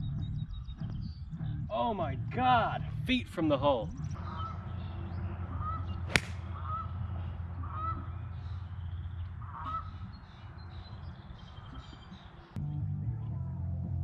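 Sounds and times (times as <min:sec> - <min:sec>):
geese honking: 0:04.2 - 0:08.6, 0:09.4 - 0:10.4.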